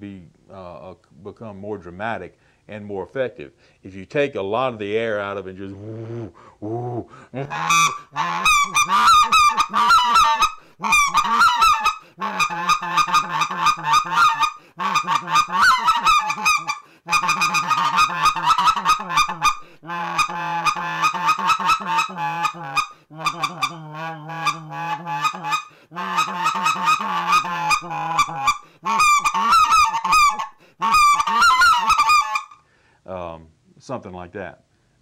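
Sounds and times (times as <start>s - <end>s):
goose call growling notes: 5.8s - 32.6s.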